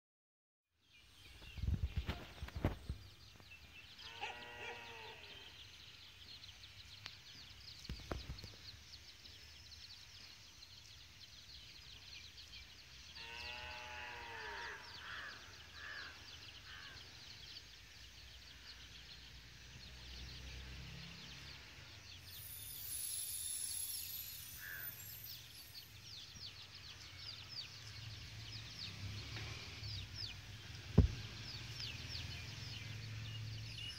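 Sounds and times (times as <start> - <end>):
faint outdoor ambience: 0.7 - 33.9
high chirps: 22.2 - 26.1
knocks on microphone: 31.0 - 31.2.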